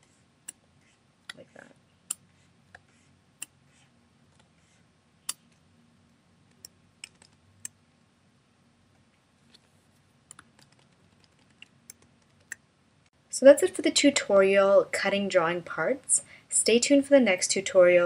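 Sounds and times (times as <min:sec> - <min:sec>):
faint room hiss: 0:00.0 - 0:18.0
keyboard and mouse clicks: 0:06.5 - 0:07.8, 0:10.3 - 0:12.6.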